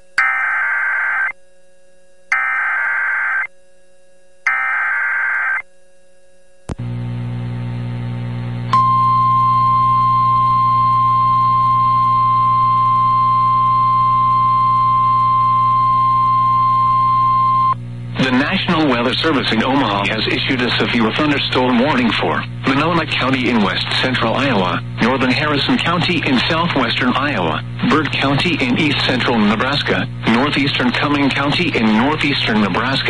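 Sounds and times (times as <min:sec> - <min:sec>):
steady alarm tone: 0:00.0 - 0:03.6, 0:04.4 - 0:05.7
screechy data tones: 0:00.2 - 0:01.4, 0:02.3 - 0:03.5, 0:04.5 - 0:05.6
low hum: 0:06.7 - 0:19.1.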